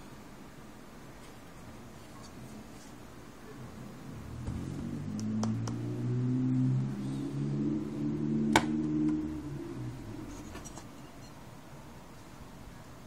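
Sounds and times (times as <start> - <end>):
low hum changing pitch: 4.0 - 10.4.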